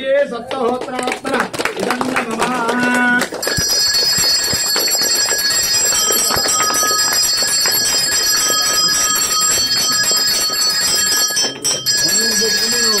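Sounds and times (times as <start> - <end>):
bells ringing continuously: 3.3 - 13.0.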